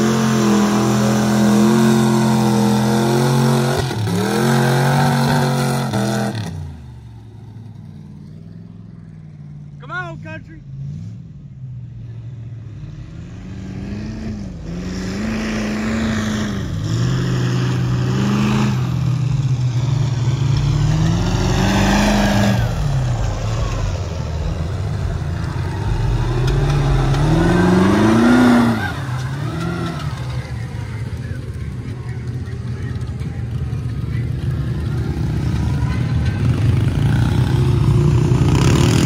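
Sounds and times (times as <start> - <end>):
truck engine revving: 0.0 - 11.4, 12.6 - 39.0
tyres churning mud: 19.8 - 39.0.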